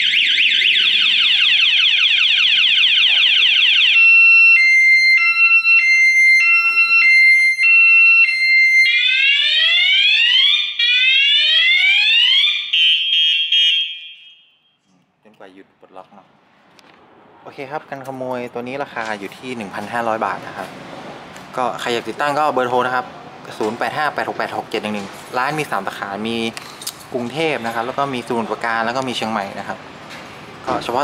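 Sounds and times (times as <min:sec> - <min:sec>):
motorcycle alarm siren: 0:00.0 - 0:14.8.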